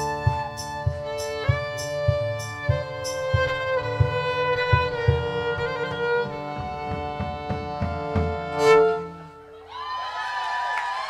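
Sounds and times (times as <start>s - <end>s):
fiddle-led folk band playing: 0.0s - 9.6s
applause: 10.0s - 11.0s.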